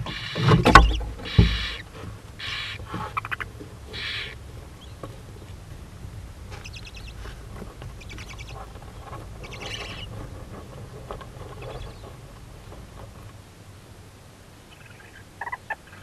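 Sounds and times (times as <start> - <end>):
owl hissing call: 0.0 - 0.5, 1.2 - 4.4
owls chittering rattles: 0.0 - 5.0, 6.5 - 7.2, 7.9 - 10.4, 11.4 - 12.3, 14.7 - 16.0.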